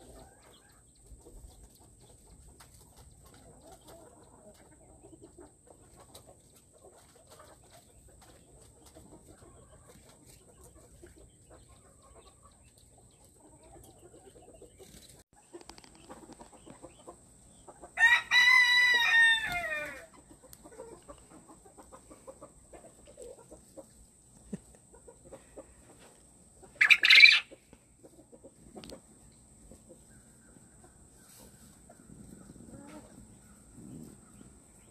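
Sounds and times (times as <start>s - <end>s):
rooster crowing: 18.0s - 20.1s.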